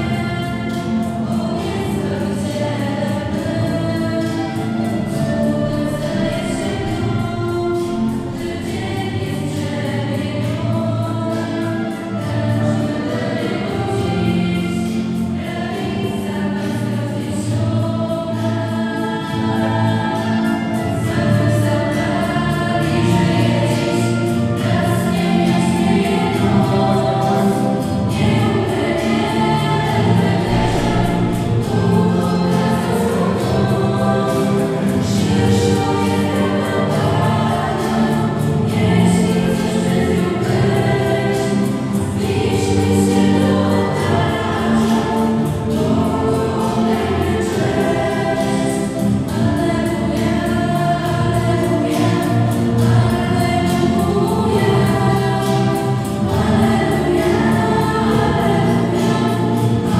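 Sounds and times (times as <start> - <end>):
choir singing a hymn: 0.0 - 59.9.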